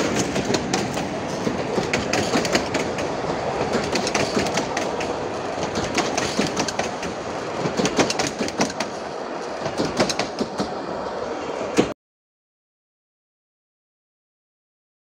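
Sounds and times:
coaches rolling rattle: 0.0s - 10.4s
train wheels clicking over rail joints: 0.0s - 10.8s.

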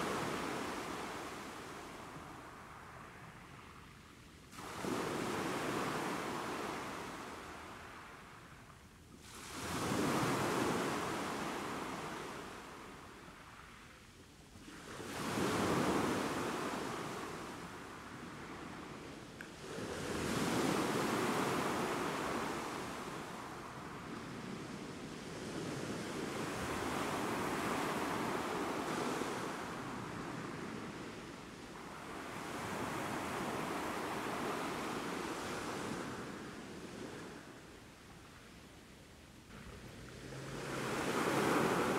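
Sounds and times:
sea waves on rocky shore: 40.0s - 41.9s.

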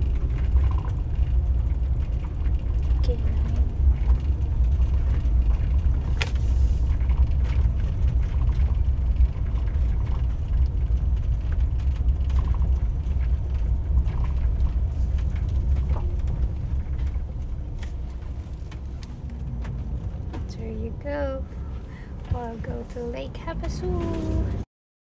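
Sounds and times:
small rattles and clicks: 0.0s - 24.6s
engine and tyres rumbling: 0.0s - 24.7s.

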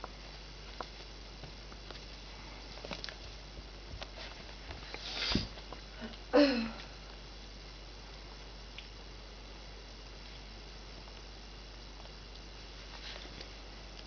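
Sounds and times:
soft rustles and taps: 0.0s - 5.9s.

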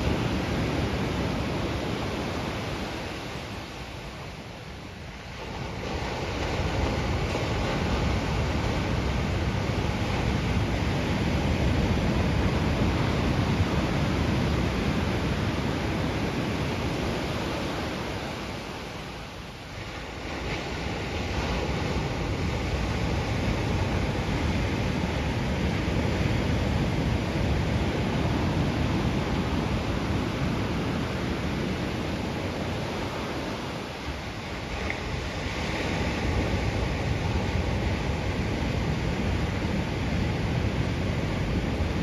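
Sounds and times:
ocean surf washing ashore: 0.0s - 42.0s
wind noise on microphone: 0.0s - 42.0s.

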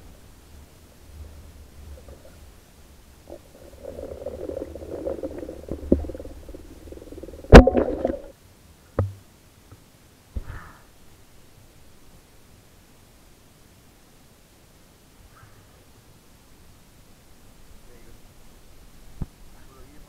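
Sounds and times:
low underwater rumble: 3.2s - 8.3s
faint thumps: 3.3s - 8.3s
speargun firing underwater: 4.3s - 8.3s.

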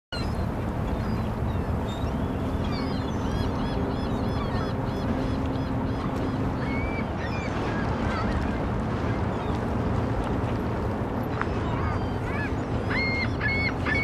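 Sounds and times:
birds chirping: 0.1s - 8.4s, 11.3s - 14.0s
low rumble with drone: 0.2s - 14.0s.

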